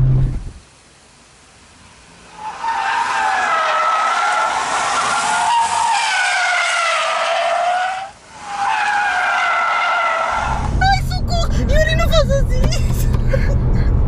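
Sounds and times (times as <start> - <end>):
car tyres squealing: 2.2 - 11.5.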